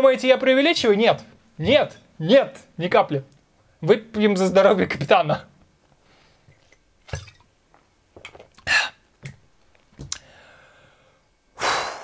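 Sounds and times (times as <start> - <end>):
man gulping from a bottle: 8.2 - 8.9
breathy exhale: 10.2 - 12.0.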